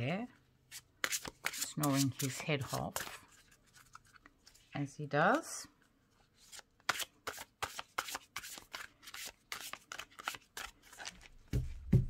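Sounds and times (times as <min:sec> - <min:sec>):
cards being shuffled: 0:00.7 - 0:04.6, 0:06.3 - 0:11.8.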